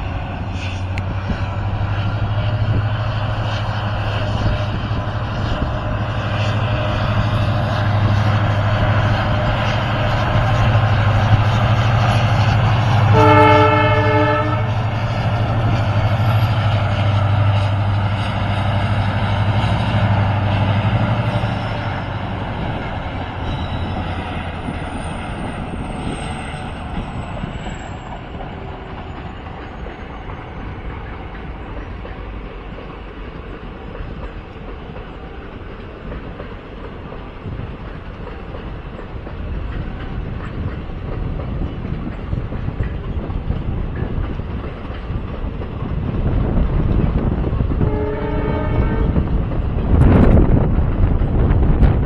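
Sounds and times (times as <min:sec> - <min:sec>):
passenger train rumbling over rails: 0:00.0 - 0:52.0.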